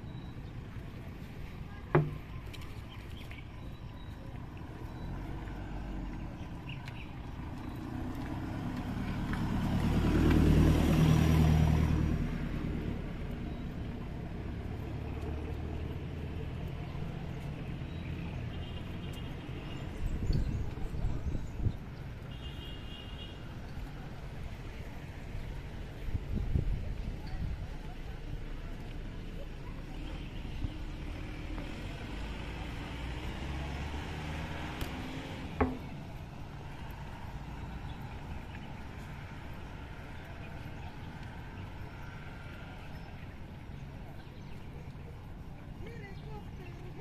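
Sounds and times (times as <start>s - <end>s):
faint street ambience: 0.0s - 47.0s
vehicle engine humming: 0.0s - 47.0s
car passing on road: 4.4s - 26.7s, 28.1s - 47.0s.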